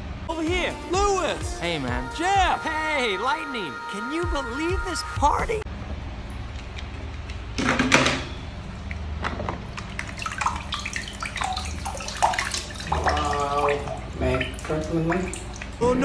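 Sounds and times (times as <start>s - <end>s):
water sloshing and splashing: 7.8s - 15.8s
water dripping: 8.7s - 15.8s.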